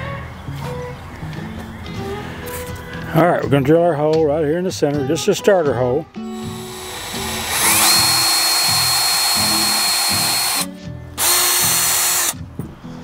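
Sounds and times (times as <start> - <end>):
background music with steady beat: 0.0 - 13.0
cordless drill boring into wood: 6.3 - 12.4.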